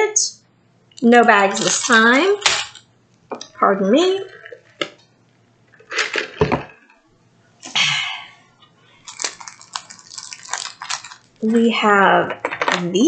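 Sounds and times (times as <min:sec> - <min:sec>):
person drinking through a straw: 0:04.2 - 0:04.8, 0:09.1 - 0:11.3.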